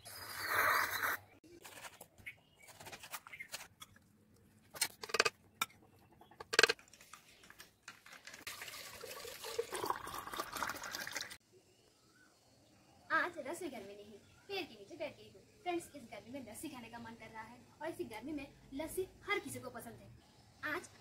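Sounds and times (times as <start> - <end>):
liquid sloshing and pouring: 8.0 - 11.4.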